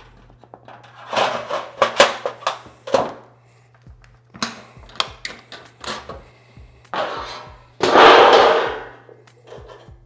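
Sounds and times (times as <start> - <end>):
sheet metal clanking on workbench: 7.8 - 8.9.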